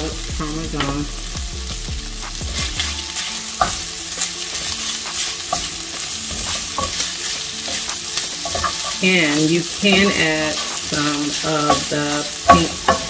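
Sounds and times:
filling sizzling in a skillet: 0:00.0 - 0:13.0
wooden spoon stirring and scraping: 0:02.2 - 0:13.0
spoon clicking against pan: 0:03.6 - 0:13.0.

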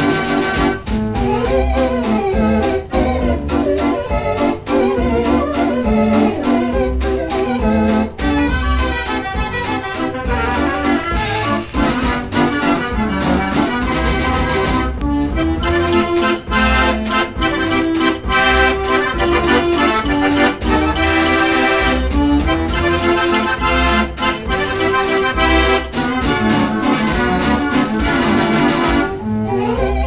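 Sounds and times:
dance organ playing a waltz: 0:00.0 - 0:30.0
percussion strokes: 0:15.6 - 0:27.2.

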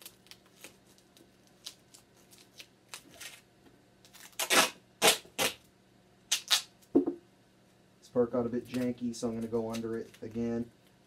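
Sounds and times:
duct tape ripping off roll: 0:04.0 - 0:05.7, 0:06.3 - 0:06.8
tape crinkling and tapping: 0:08.6 - 0:11.0.

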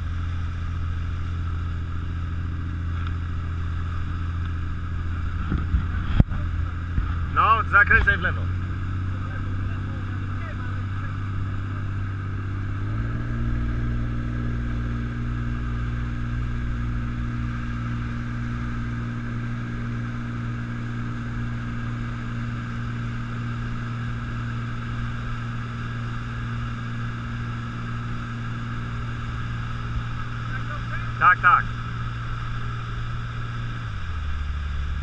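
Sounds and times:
motorboat engine running: 0:00.0 - 0:35.0
water rushing around hull: 0:00.0 - 0:35.0.

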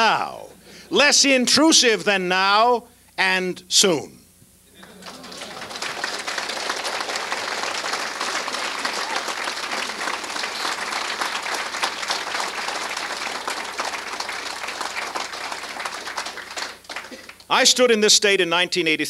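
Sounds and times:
audience applause: 0:04.8 - 0:17.5.

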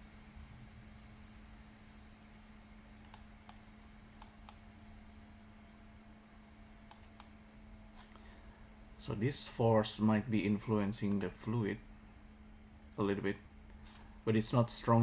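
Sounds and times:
low steady hum: 0:00.0 - 0:15.0
faint computer mouse clicks: 0:03.0 - 0:03.6, 0:04.2 - 0:04.6, 0:06.9 - 0:08.2, 0:11.1 - 0:11.3.

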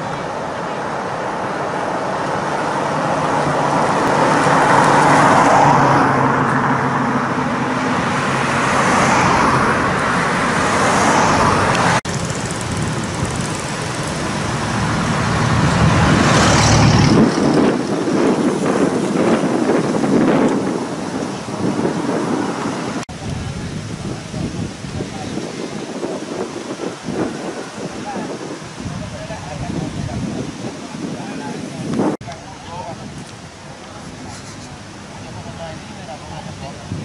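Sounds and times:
deep engine hum: 0:00.0 - 0:17.7
cars passing with tyre noise: 0:00.0 - 0:37.0.

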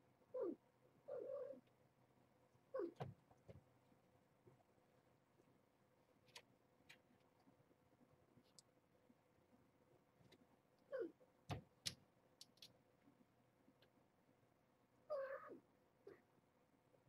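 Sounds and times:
cat meowing: 0:02.8 - 0:03.0, 0:15.1 - 0:16.2.

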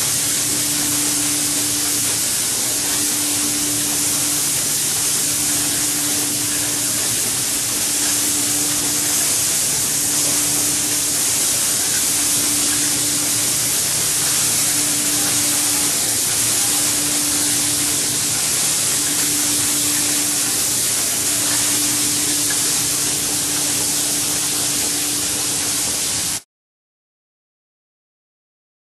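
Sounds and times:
interrupted tone: 0:00.0 - 0:25.5
low machine hum: 0:00.0 - 0:26.4
spray guns hissing: 0:00.0 - 0:26.4.

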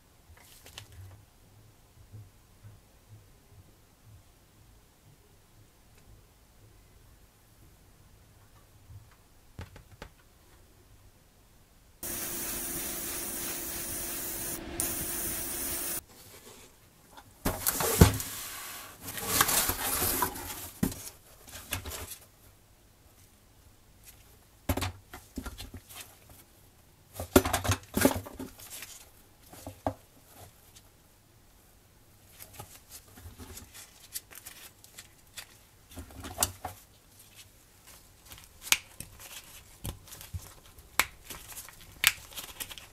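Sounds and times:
spraying hiss: 0:12.0 - 0:16.0.

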